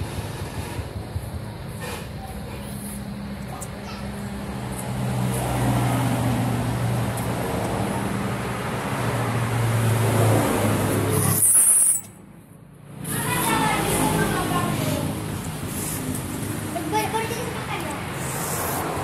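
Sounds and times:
traffic noise: 0.0s - 19.0s
high hiss: 14.1s - 19.0s.

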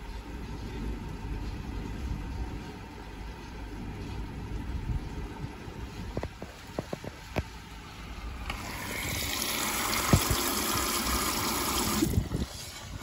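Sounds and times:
water rushing in washing machine: 8.3s - 13.0s.

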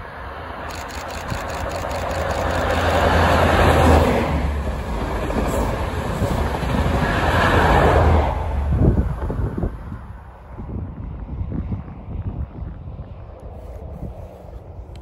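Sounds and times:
low diesel engine drone: 0.0s - 4.8s
train passing at speed: 0.0s - 15.0s.

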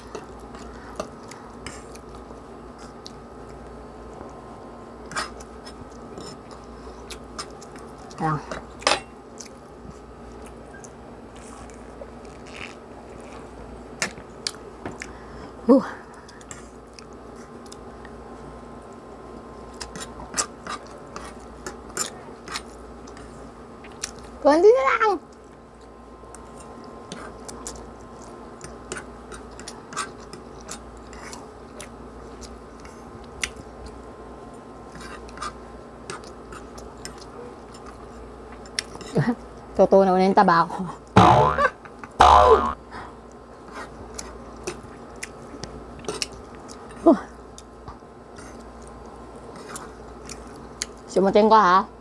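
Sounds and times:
chewing: 0.1s - 4.4s, 5.0s - 15.2s, 19.7s - 24.4s, 25.3s - 34.0s, 34.9s - 39.7s, 43.3s - 51.0s
steady low hum: 41.0s - 43.4s
short rising vocal sound: 41.2s - 42.8s.

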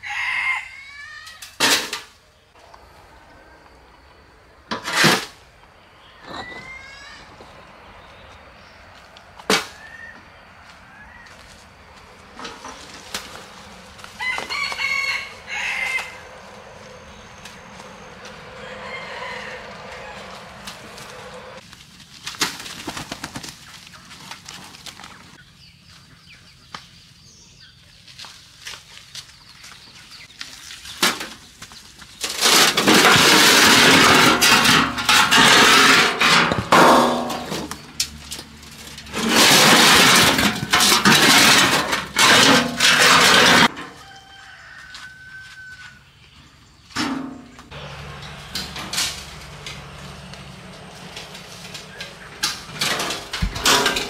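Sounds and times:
concrete blocks clattering on metal: 32.2s - 37.8s, 38.9s - 43.8s, 51.8s - 54.0s.

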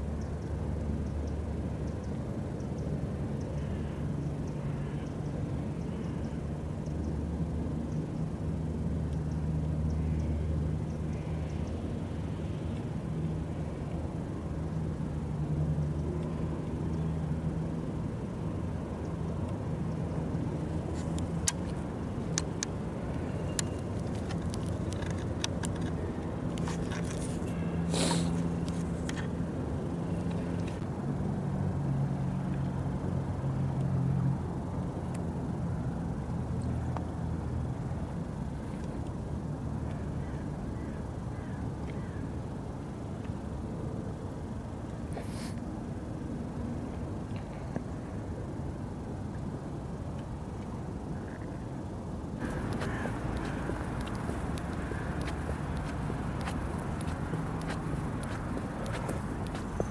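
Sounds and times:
short hiss: 27.9s - 28.4s, 45.2s - 45.6s
low engine rumble: 51.9s - 59.9s
sharp clicks: 52.4s - 59.9s.

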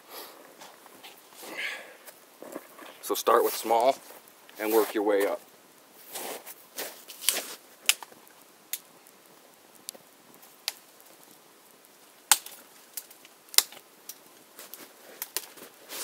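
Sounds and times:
twig fire crackling: 0.0s - 16.0s
sharp pops of fire: 2.0s - 16.0s.

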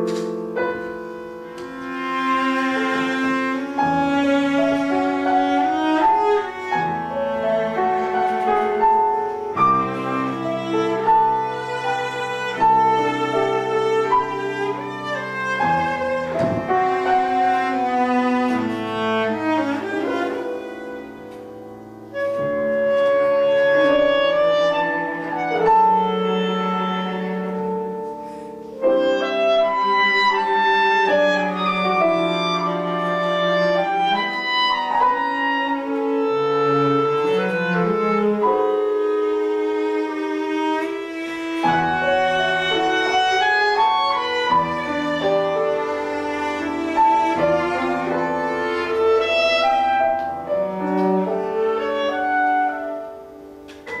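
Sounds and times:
cello: 0.0s - 54.0s
clarinet: 0.0s - 54.0s
piano: 0.0s - 54.0s.

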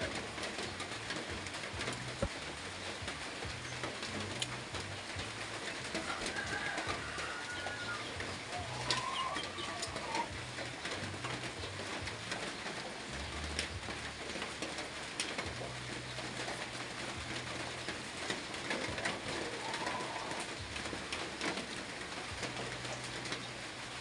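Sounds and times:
dove cooing: 5.8s - 10.9s, 17.6s - 21.6s.

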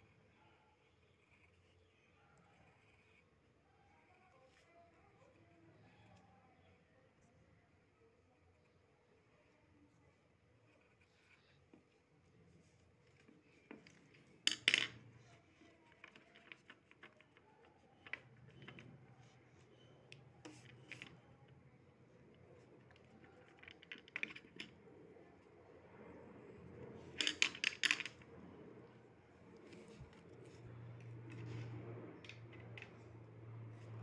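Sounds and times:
small objects knocking on desk: 14.4s - 15.0s.

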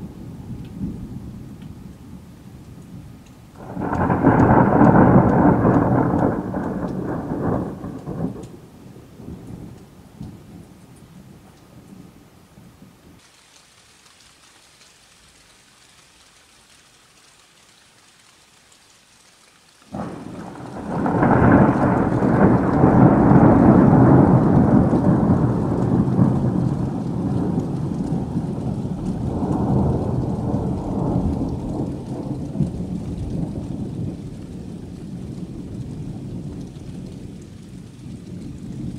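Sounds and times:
thunder crack and rumble: 0.0s - 10.7s, 19.9s - 38.9s
rain hiss: 0.0s - 38.9s.

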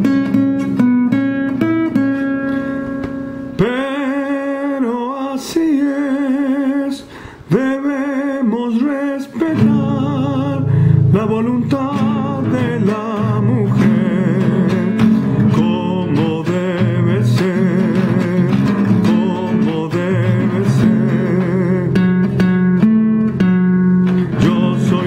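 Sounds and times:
guitar: 0.0s - 25.0s
man singing with vibrato: 3.5s - 22.6s, 24.1s - 25.0s.

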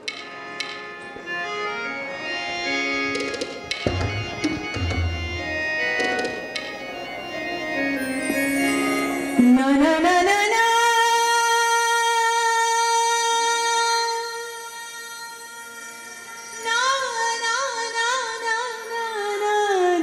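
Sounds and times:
instrumental folk accompaniment: 0.0s - 11.8s
drum strokes: 3.1s - 7.0s
woman singing: 9.3s - 20.0s.

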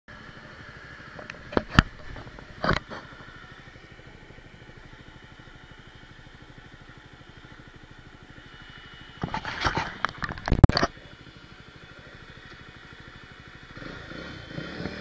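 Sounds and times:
motorcycle engine idling: 0.1s - 15.0s
knocks and scrapes on camera: 1.4s - 3.1s, 9.2s - 10.9s.

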